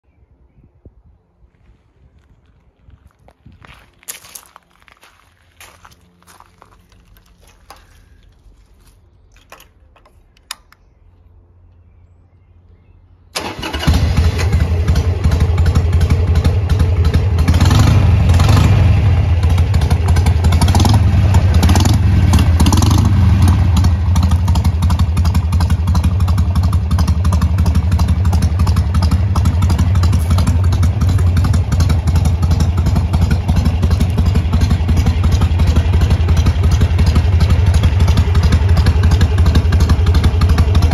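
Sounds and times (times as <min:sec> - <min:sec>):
motorcycle engine starting and revving: 0:13.4 - 0:40.9.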